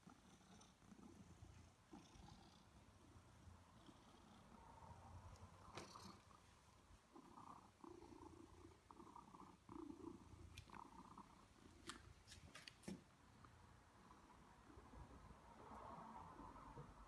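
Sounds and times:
cat purring faintly: 0.0 - 11.9.

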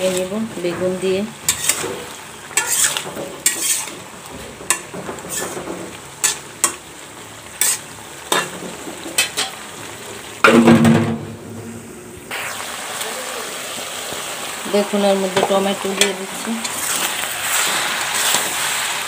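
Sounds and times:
metal spatula scraping pan: 0.0 - 6.8, 7.6 - 9.6, 15.4 - 18.8
vegetables sizzling in oil: 0.0 - 19.0.

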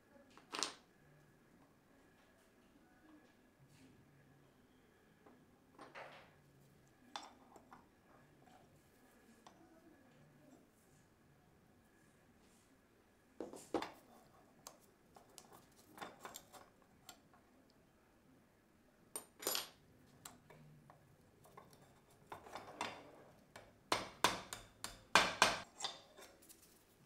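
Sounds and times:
hammer tapping on anvil: 23.6 - 26.0.

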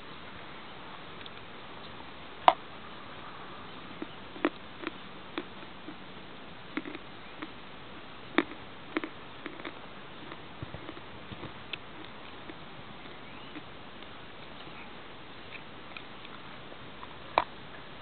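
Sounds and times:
crisp chewing crunches: 4.0 - 6.0, 6.7 - 7.6, 8.3 - 17.5.

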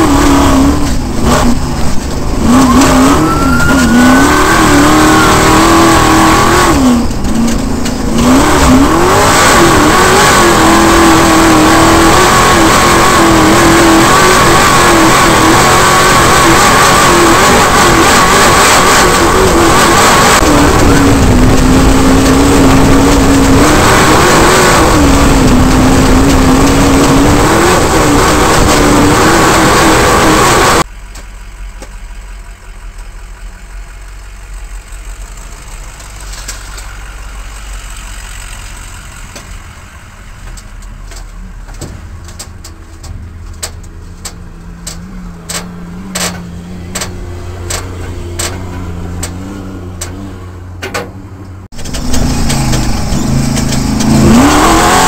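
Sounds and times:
race vehicle engine running: 0.0 - 55.0
road and wind noise: 0.0 - 55.0
clicks and knocks: 40.4 - 50.2, 50.8 - 54.2.

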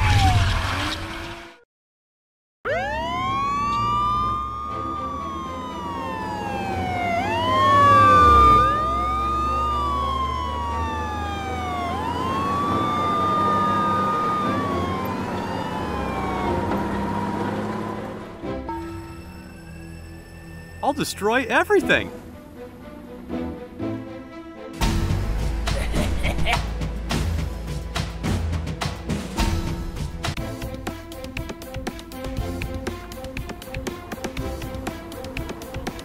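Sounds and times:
police sirens wailing: 2.7 - 24.0.

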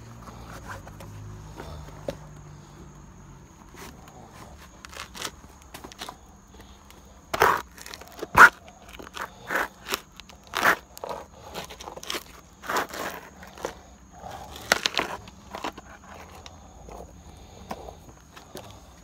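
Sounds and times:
shoes scraping on concrete step: 7.3 - 13.8.

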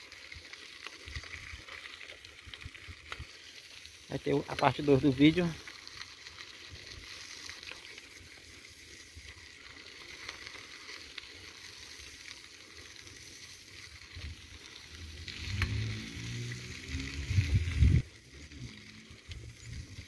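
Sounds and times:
light rain hissing: 0.0 - 20.0
wind on microphone: 17.2 - 18.0.

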